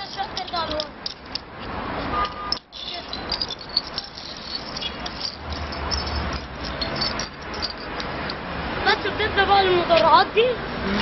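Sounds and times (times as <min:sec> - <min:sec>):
voices: 0:00.0 - 0:01.2, 0:02.2 - 0:07.0, 0:08.7 - 0:11.0
bottle caps clicking on concrete: 0:00.0 - 0:08.4
passing traffic: 0:00.0 - 0:11.0.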